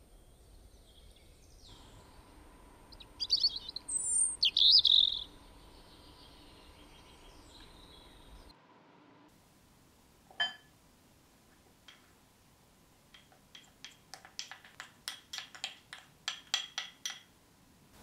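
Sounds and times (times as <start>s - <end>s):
glass bowl clinking: 10.3s - 10.7s
wooden spoon tapping: 11.8s - 12.2s, 13.1s - 17.3s.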